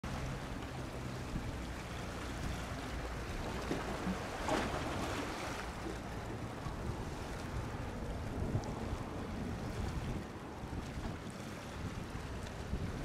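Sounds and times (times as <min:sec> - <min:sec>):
sea water washing at shoreline: 0:00.0 - 0:13.0
wind on microphone: 0:06.4 - 0:13.0.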